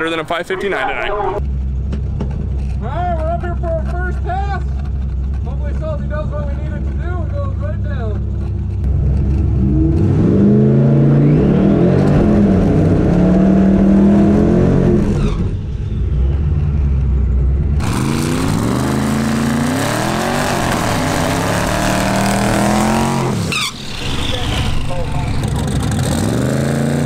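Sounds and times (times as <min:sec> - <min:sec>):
car engine revving: 0:04.8 - 0:27.0
spinning tyres hissing: 0:20.5 - 0:26.0.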